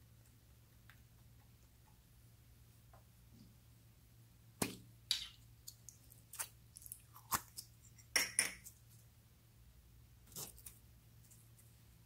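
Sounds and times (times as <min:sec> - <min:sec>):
slime squelching: 0:04.6 - 0:08.1.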